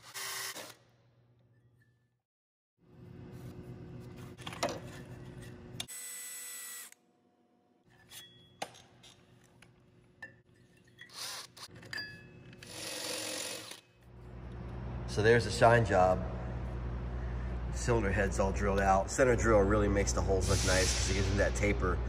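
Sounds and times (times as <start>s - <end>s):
cordless drill cutting metal: 0.0s - 0.8s, 5.9s - 7.0s, 12.6s - 13.8s.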